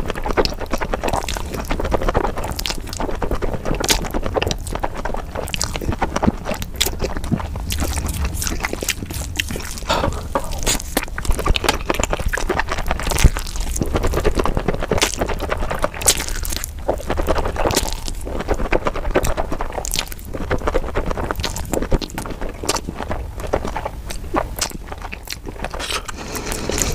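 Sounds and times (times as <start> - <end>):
slurping and chewing noodles: 0.0 - 26.9.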